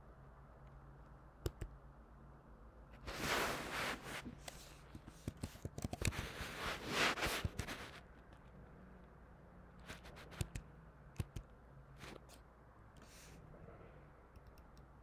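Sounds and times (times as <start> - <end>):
computer keyboard typing: 1.4 - 1.8, 5.0 - 6.2, 10.0 - 11.6, 14.4 - 14.9.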